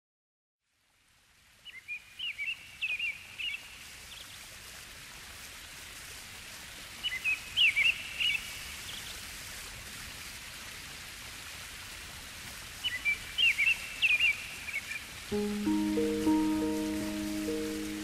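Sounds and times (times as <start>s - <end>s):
songbird chirping and whistling: 15.3s - 18.0s
steady rushing hiss: 15.3s - 18.0s.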